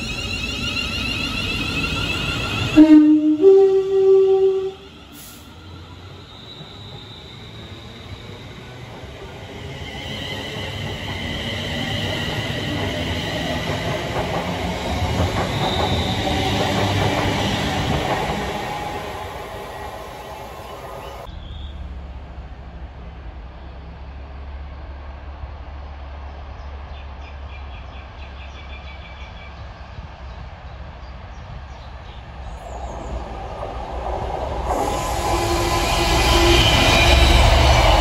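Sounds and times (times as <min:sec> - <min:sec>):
electric train passing: 0:00.0 - 0:26.5, 0:29.4 - 0:38.0
distant diesel locomotive rumble: 0:00.0 - 0:38.0
train wheels rattling: 0:05.0 - 0:21.3.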